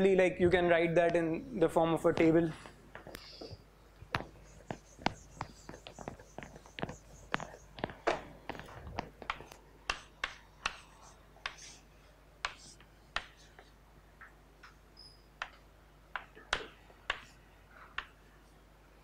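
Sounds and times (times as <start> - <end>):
low steady hum: 0.0 - 19.0
chalk tapping on chalkboard: 3.0 - 11.8, 12.4 - 13.7, 16.2 - 17.3.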